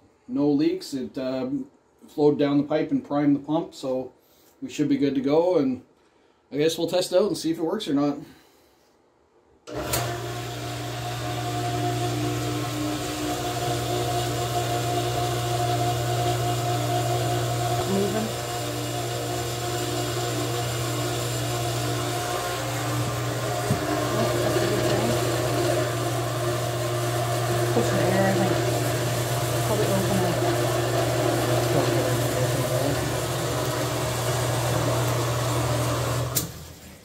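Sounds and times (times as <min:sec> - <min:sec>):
pump motor humming: 0:09.7 - 0:37.0.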